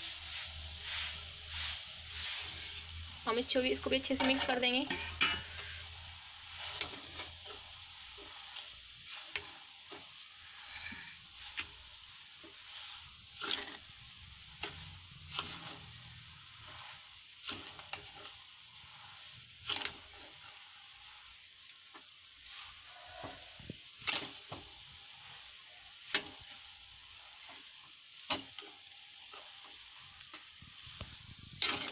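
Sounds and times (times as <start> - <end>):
soft sizzle: 0.0 - 31.9
spatula scraping a pan: 0.0 - 31.9.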